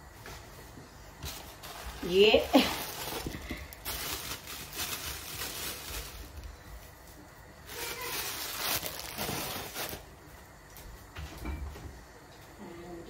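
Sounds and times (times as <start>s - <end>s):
plastic packet crinkling: 1.4s - 6.6s, 7.6s - 10.1s.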